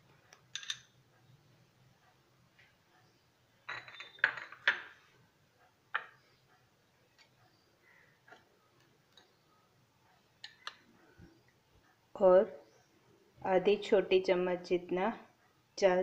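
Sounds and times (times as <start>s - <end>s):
spoon clinking glass bowl: 3.7s - 4.8s.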